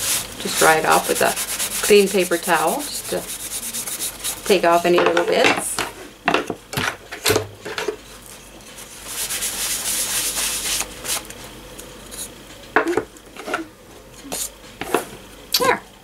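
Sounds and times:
paper towel rubbing coasters: 0.0 - 4.9, 8.8 - 11.2.

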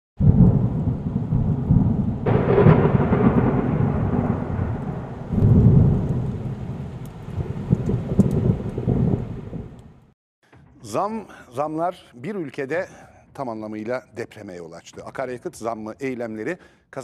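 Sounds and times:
rain: 0.2 - 10.1
rolling thunder: 0.2 - 10.1
thunder crack: 0.2 - 10.1.

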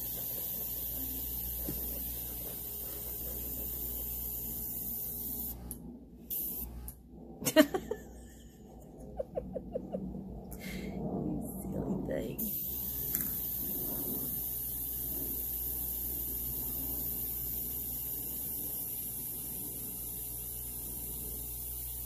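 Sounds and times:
airbrush hissing air: 0.0 - 5.7, 6.3 - 6.9, 12.4 - 22.0.

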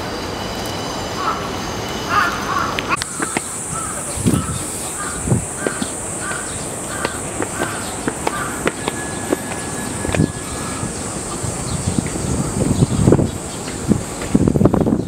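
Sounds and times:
steady high hiss: 0.0 - 14.9
crow cawing: 2.1 - 8.9
footsteps on stone steps: 2.5 - 11.4.

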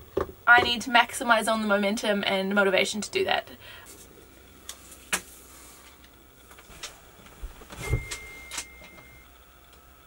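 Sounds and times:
thin steady high tone: 7.8 - 9.4.

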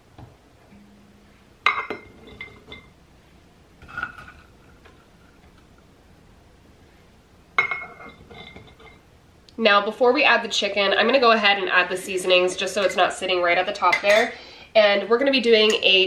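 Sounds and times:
metal cup clinking on glass jars: 1.7 - 2.9.

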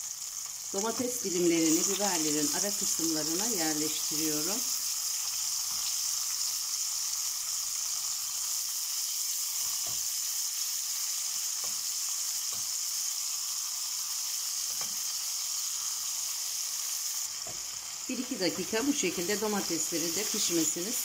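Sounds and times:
peppers sizzling in hot oil: 0.0 - 21.0.

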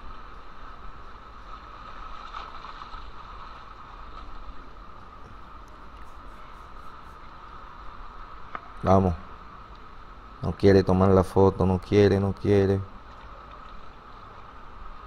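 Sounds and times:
sea water surging over rocks: 0.0 - 10.4.

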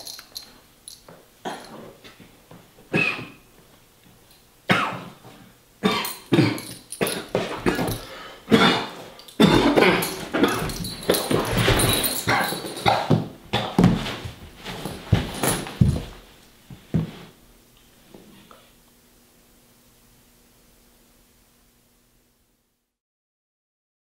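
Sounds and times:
man choking and gasping: 6.4 - 10.7
body collapsing to floor: 7.0 - 8.1, 8.7 - 17.3.

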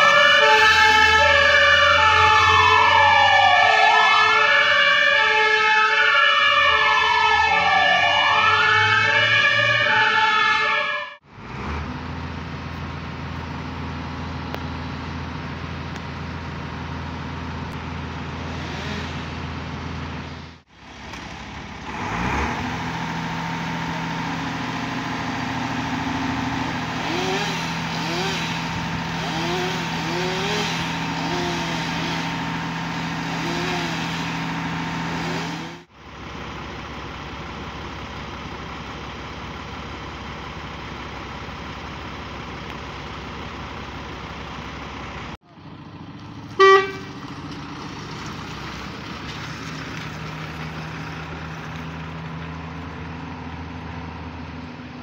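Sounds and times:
engine revving: 0.0 - 10.6, 11.2 - 12.8, 17.6 - 35.9
diesel engines running: 0.0 - 55.0
loud pitched horn blast: 46.6 - 47.1.

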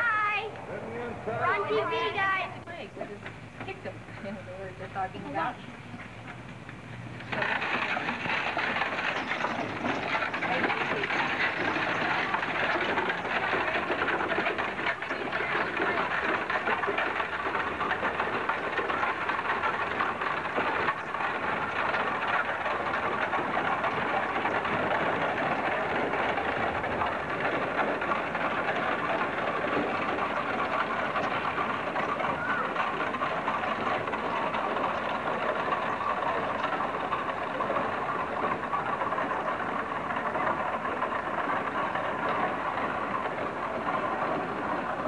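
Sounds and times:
wagon wheels rattling: 0.0 - 45.0.

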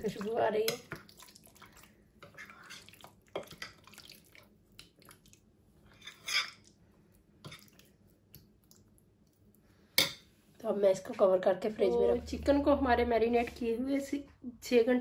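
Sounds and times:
wet stirring: 0.0 - 10.3.

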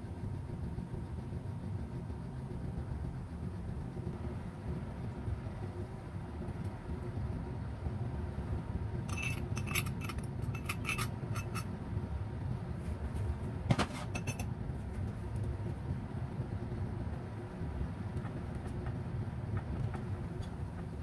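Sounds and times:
low background rumble: 0.0 - 21.0
metal spoon clinking on bowls: 9.1 - 11.7, 14.2 - 14.5.

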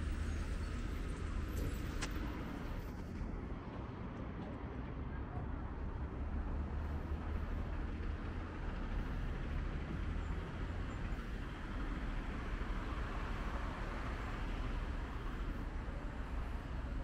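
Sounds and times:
city road traffic: 0.0 - 17.0.

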